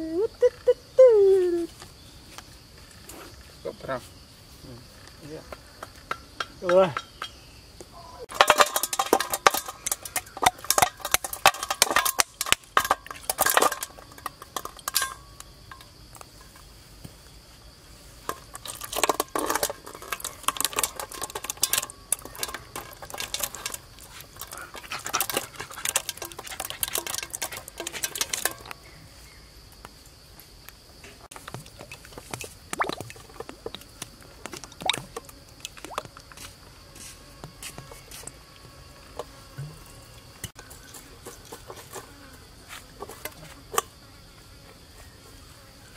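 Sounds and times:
high insect drone: 0.0s - 45.9s
utensil scraping metal basin: 8.3s - 16.7s, 18.2s - 28.9s.

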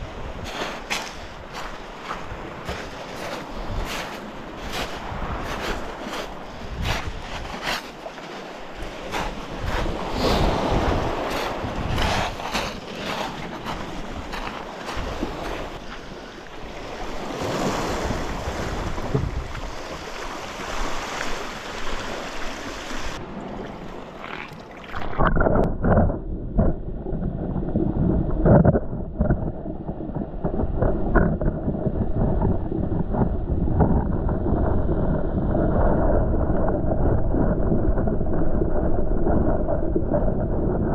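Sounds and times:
waves washing on shingle: 0.0s - 25.4s
wind on microphone: 0.0s - 40.9s
underwater water sloshing: 0.4s - 27.2s
dull knocks underwater: 19.0s - 19.6s, 23.6s - 34.7s.

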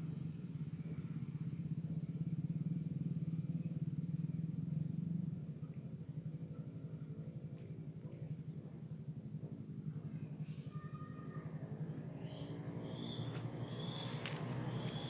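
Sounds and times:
small engine running: 11.3s - 15.0s.

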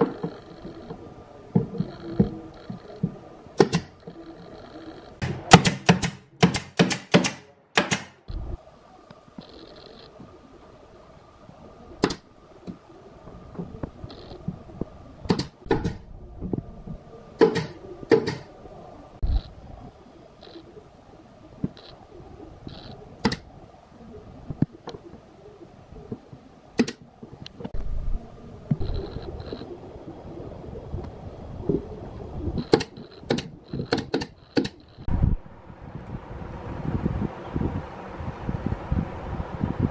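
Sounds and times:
pneumatic nailer firing: 5.2s - 8.2s.

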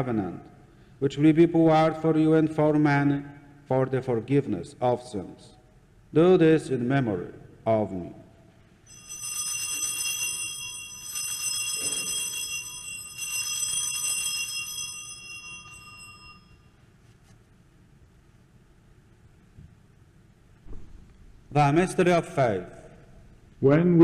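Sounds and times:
altar bells chiming: 8.9s - 16.8s.

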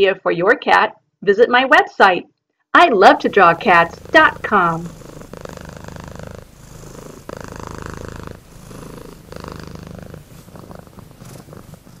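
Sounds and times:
cat purring: 3.0s - 12.0s.

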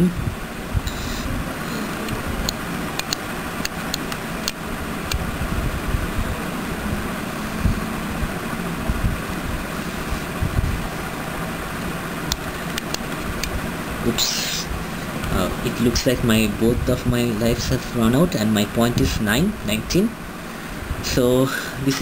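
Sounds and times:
background hum and hiss: 0.0s - 22.0s.

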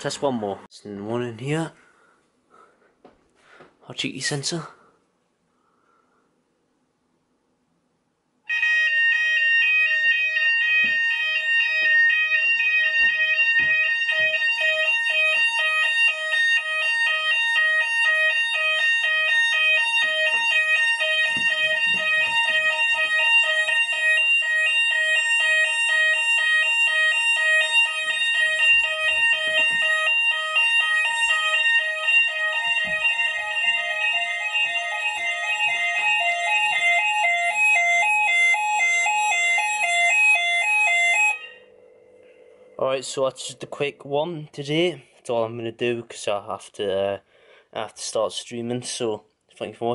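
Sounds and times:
fast warbling fire alarm: 8.5s - 43.7s.

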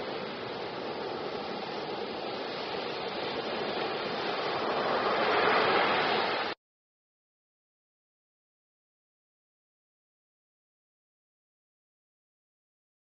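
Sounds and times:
waves breaking on beach: 0.0s - 6.6s.

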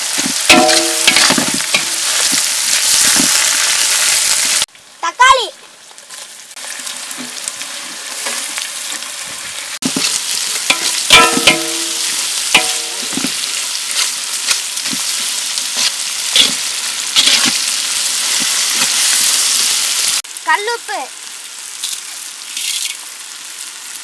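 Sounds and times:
vegetables sizzling in hot oil: 0.0s - 24.0s.

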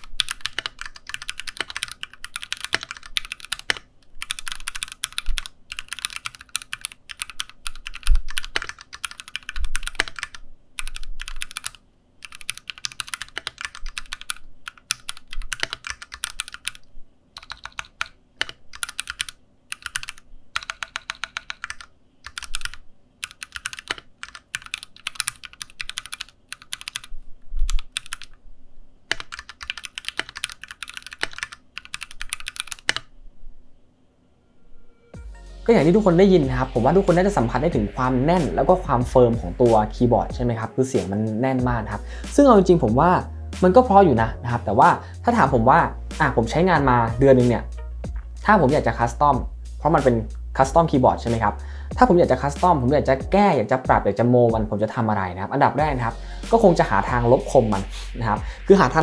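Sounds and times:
mechanical keyboard typing: 0.0s - 28.4s, 29.1s - 33.1s.

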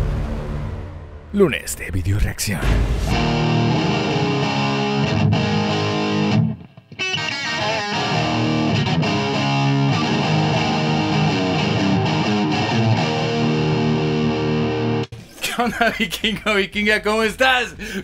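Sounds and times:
electric guitar rock riff: 3.1s - 15.1s.

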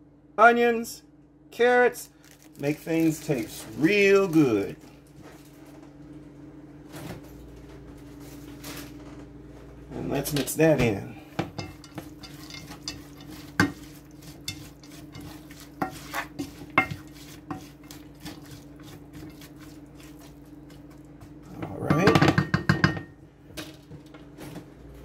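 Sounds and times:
steady low hum: 0.0s - 25.0s
utensil stirring vegetables in pot: 11.4s - 22.7s.

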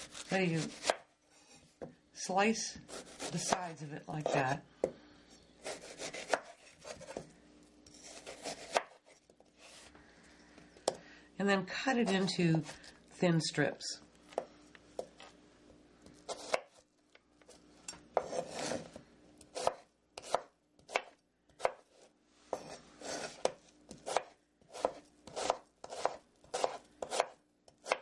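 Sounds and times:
knife slicing fruit: 0.0s - 1.1s, 2.9s - 4.5s, 5.6s - 7.2s, 7.9s - 9.8s, 16.3s - 16.8s, 18.2s - 18.9s, 19.6s - 21.9s, 22.5s - 28.0s.

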